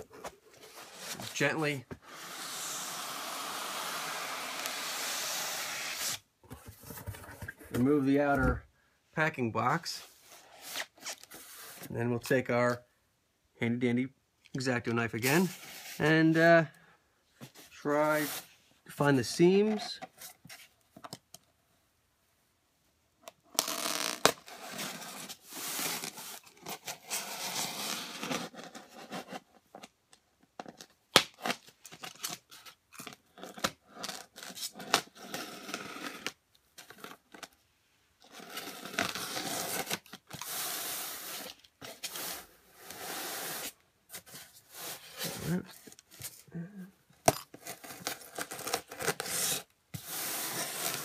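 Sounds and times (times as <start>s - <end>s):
knife scraping styrofoam: 0.6s - 6.3s, 23.6s - 29.5s, 38.2s - 46.4s, 47.6s - 51.0s.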